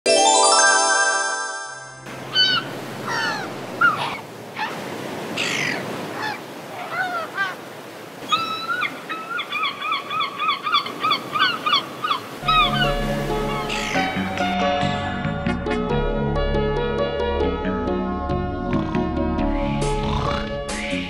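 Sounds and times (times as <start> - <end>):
seagulls calling: 2.1 - 14.5.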